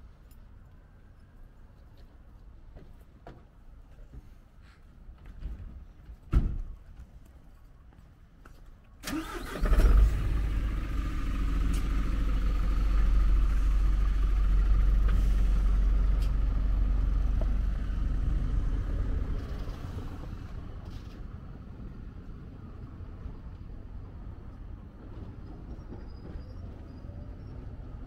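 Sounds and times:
truck engine cranking and idling: 9.0 - 22.9.

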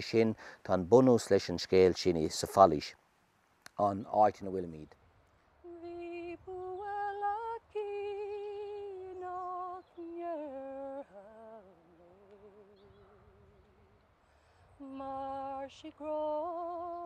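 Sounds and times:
woman singing unaccompanied: 5.6 - 14.0, 14.7 - 17.0.

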